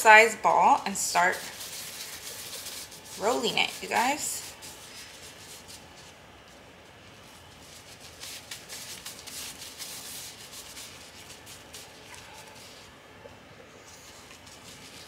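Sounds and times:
plastic gloves rustling and crinkling: 0.0s - 15.0s.

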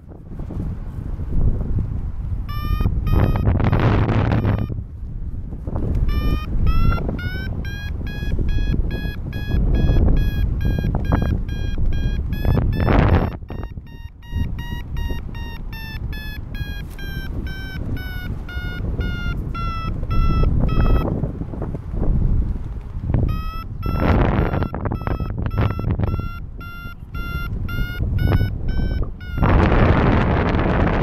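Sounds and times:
wind noise on microphone: 0.0s - 31.0s
variometer beeping: 2.4s - 4.8s, 6.0s - 21.2s, 23.2s - 30.3s.

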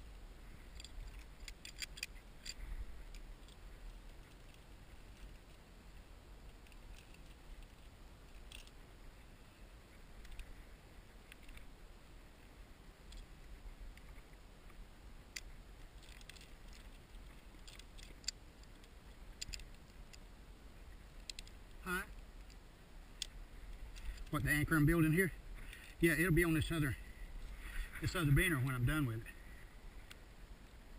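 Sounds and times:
faint low rumble: 0.0s - 30.9s
metallic clicks of carabiners: 0.6s - 5.5s, 6.5s - 8.8s, 15.3s - 20.2s, 21.1s - 21.6s.

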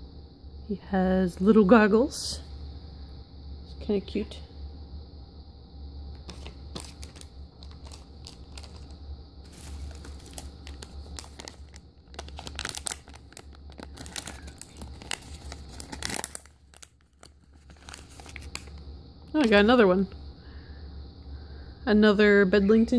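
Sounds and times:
plastic packet crinkling: 6.2s - 18.8s.

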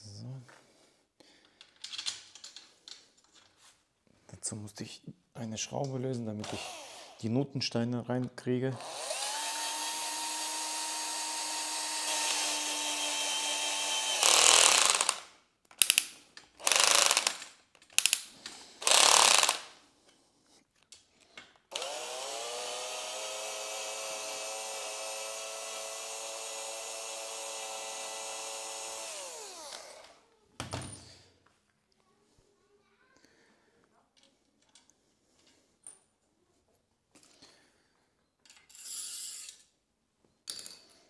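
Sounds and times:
cordless drill driving screws: 6.4s - 7.2s, 8.8s - 16.0s, 16.6s - 17.4s, 18.8s - 19.7s, 21.7s - 30.2s.

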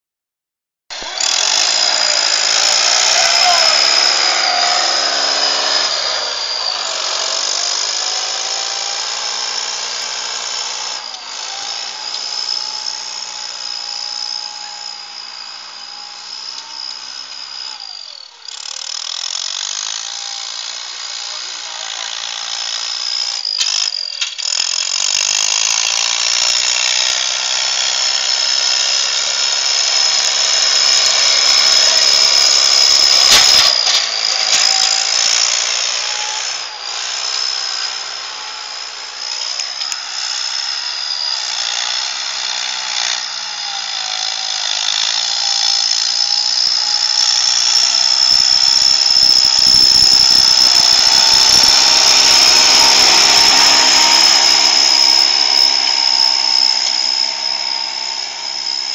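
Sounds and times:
tractor diesel engine revving: 1.1s - 8.4s, 49.5s - 58.9s
high-pitched whine: 47.9s - 58.9s.

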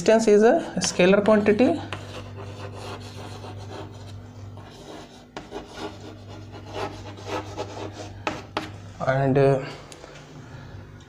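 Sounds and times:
chalk scratching on blackboard: 0.5s - 8.7s.

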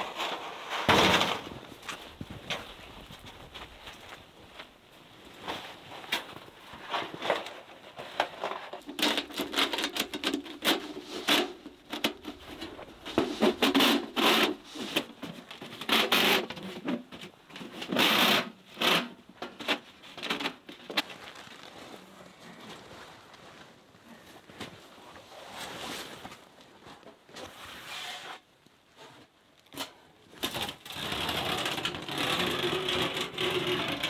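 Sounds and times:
metal pipe scraping fabric: 6.8s - 15.1s, 27.4s - 29.2s, 30.9s - 34.0s.

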